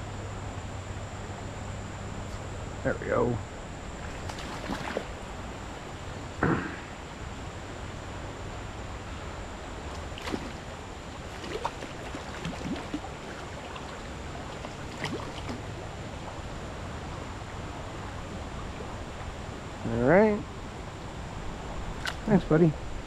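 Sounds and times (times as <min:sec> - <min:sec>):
stream water running: 0:01.9 - 0:23.0
fish splashing in water: 0:04.1 - 0:05.6, 0:10.0 - 0:15.8.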